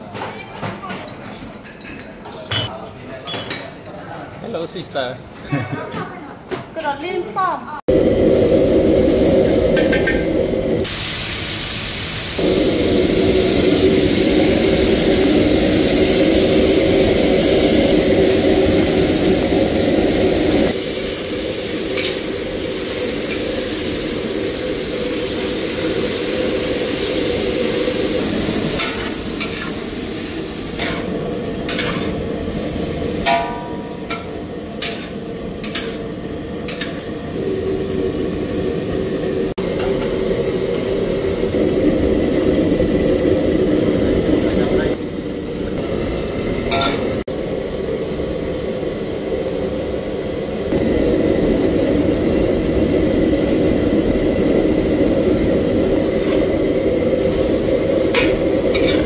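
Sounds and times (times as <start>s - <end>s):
food sizzling in hot oil: 7.9s - 43.9s, 50.7s - 59.0s
low burner rumble: 7.9s - 59.0s
metal ladle scraping a wok: 56.2s - 56.6s, 58.1s - 59.0s.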